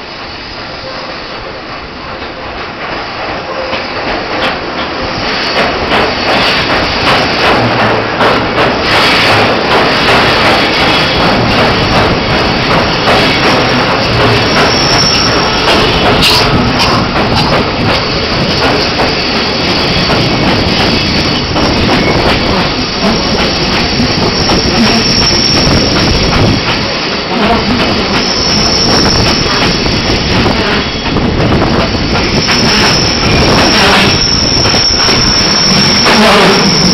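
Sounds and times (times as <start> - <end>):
train wheels running on rails: 0.0 - 36.9
high wheel squeal: 14.3 - 17.1, 19.2 - 26.2, 28.0 - 31.1, 32.2 - 36.9.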